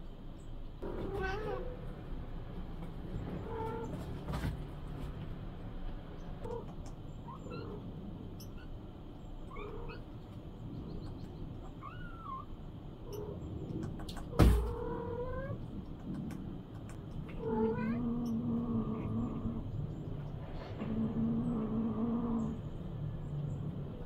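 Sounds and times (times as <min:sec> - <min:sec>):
cat meowing: 0:00.8 - 0:01.8, 0:17.3 - 0:18.3.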